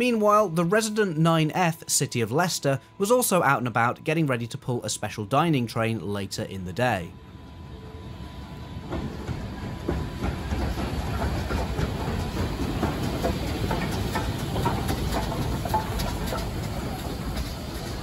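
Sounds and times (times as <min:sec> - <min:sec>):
steam locomotive passing: 0:00.0 - 0:18.0
wheels clanking and clicking: 0:08.8 - 0:18.0.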